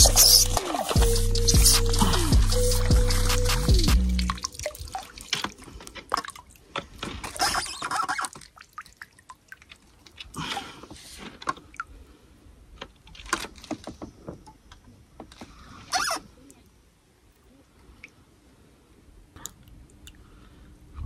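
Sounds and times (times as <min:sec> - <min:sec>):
water splashing and dripping: 0:00.0 - 0:12.1.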